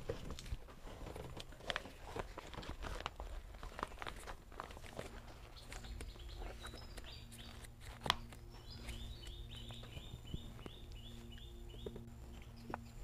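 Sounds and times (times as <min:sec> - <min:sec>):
banknotes rustling and flicking: 0:00.0 - 0:13.0
bird chirping: 0:04.9 - 0:13.0.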